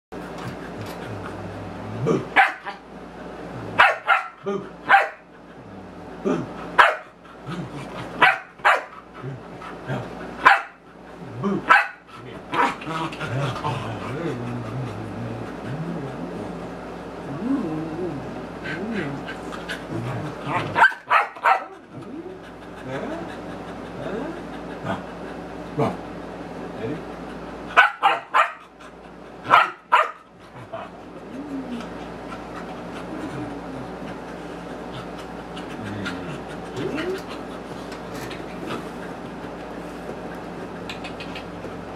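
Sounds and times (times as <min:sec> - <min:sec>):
dog play barking: 0:02.2 - 0:02.8, 0:03.7 - 0:05.3, 0:06.8 - 0:07.2, 0:08.2 - 0:09.0, 0:10.4 - 0:10.8, 0:11.7 - 0:12.8, 0:20.4 - 0:21.8, 0:27.7 - 0:28.7, 0:29.4 - 0:30.3.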